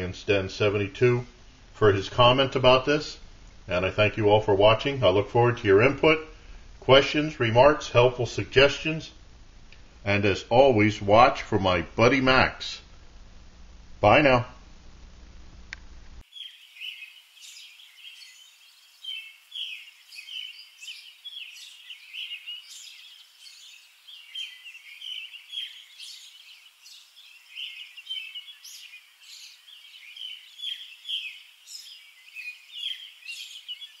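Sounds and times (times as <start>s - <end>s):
birds chirping and singing: 16.3s - 34.0s.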